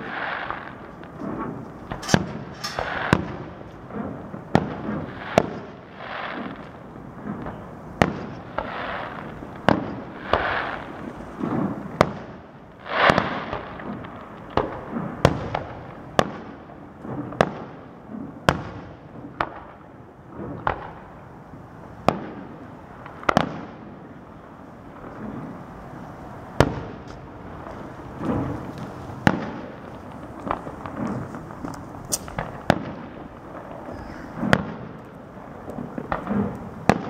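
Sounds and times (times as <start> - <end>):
firework shells bursting: 0.0 - 6.8, 26.6 - 37.0
firework hiss: 0.0 - 15.2, 25.2 - 37.0.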